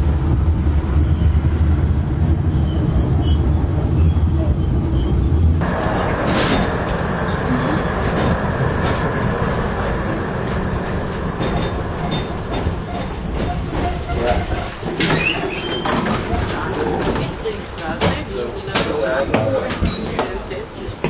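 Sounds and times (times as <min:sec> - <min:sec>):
tram wheels rumbling on track: 0:00.0 - 0:21.0
faint high squeal: 0:10.4 - 0:11.3.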